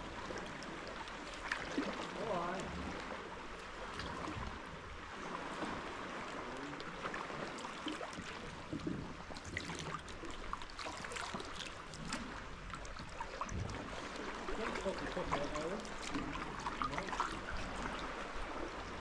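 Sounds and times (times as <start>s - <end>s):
small splashes and drips: 0.0s - 19.0s
water lapping against rock: 0.0s - 19.0s.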